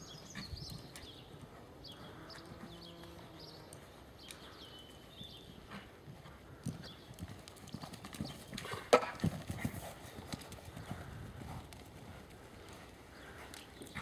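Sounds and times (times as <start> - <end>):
horse hoofbeats on sand: 4.7 - 14.0.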